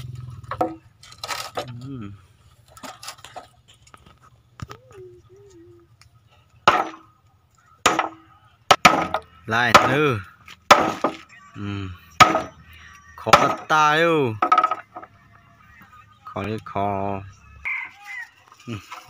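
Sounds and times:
hammer striking nails into wood: 6.7s - 7.0s, 7.9s - 10.0s, 10.7s - 11.2s, 12.2s - 12.5s, 13.4s - 13.7s.

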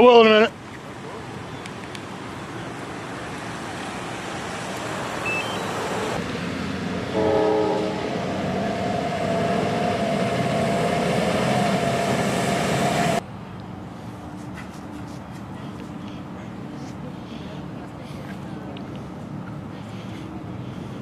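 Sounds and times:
ambulance horn: 7.1s - 8.3s.

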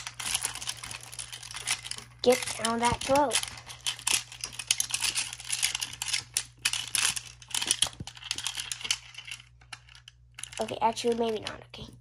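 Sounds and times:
plastic crinkling: 0.0s - 11.8s.

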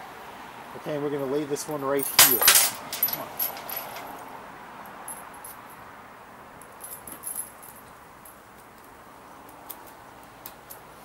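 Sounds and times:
metal chain links clinking: 2.0s - 4.2s, 6.7s - 8.4s.

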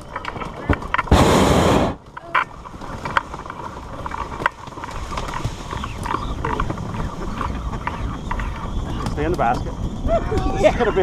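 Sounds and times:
twigs scraping against basket: 2.2s - 9.8s.

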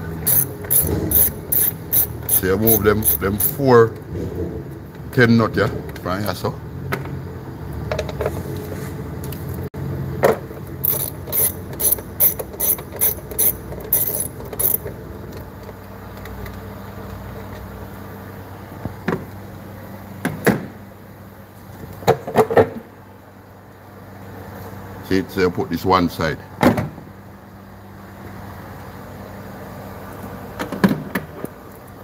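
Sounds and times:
hand ratchet clicking: 0.2s - 3.6s, 10.8s - 14.9s.

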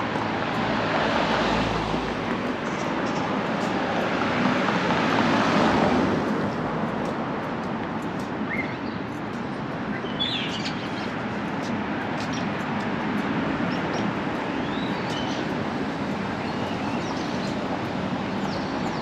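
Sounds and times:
vehicle passing by: 0.0s - 6.8s
city street traffic: 0.0s - 19.0s
bird chirps: 8.5s - 9.0s, 9.9s - 11.1s, 13.7s - 15.5s.

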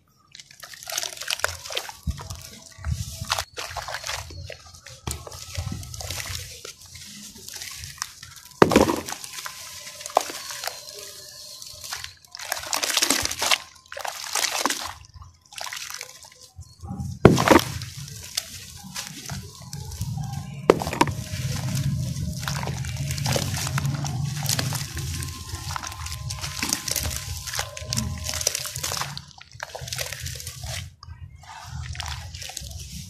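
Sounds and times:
wet sloshing and squelching: 0.2s - 33.0s
pieces splashing into water: 7.5s - 10.8s, 11.8s - 16.4s, 17.2s - 20.0s, 20.7s - 30.9s.

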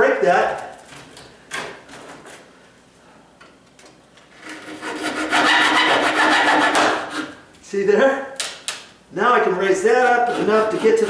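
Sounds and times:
hacksaw rasping through nail: 4.4s - 7.4s, 10.0s - 11.0s.

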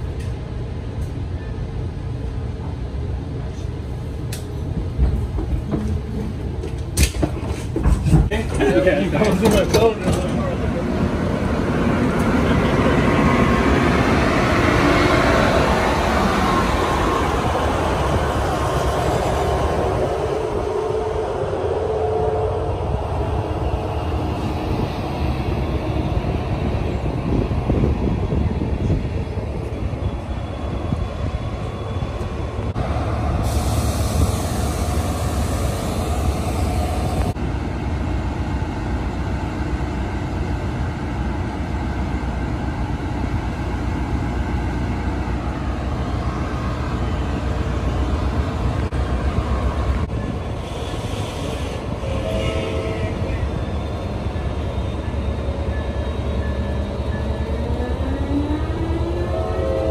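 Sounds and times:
locomotive engine rumbling: 0.0s - 59.9s
hiss: 33.4s - 37.3s.

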